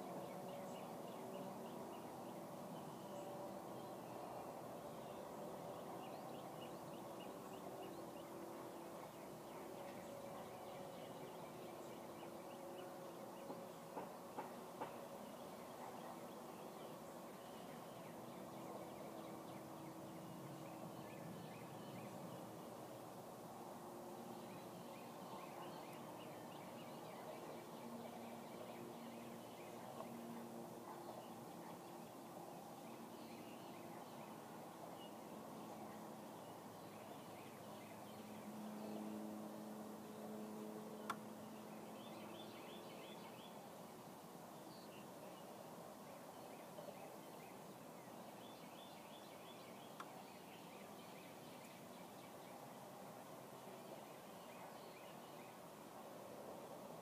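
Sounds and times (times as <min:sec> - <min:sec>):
small birds chirping: 0:41.0 - 0:55.7.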